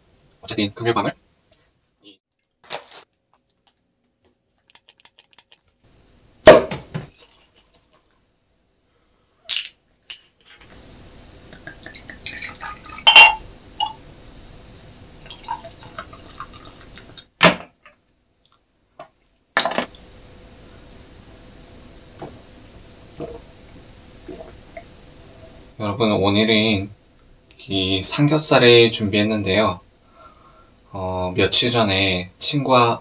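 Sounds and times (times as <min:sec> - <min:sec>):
liquid pouring into glass: 0:11.5 - 0:14.0, 0:15.2 - 0:17.2, 0:24.2 - 0:24.9
spoon clinking glass: 0:12.4 - 0:14.0
glassware knocking and clinking: 0:12.9 - 0:14.0.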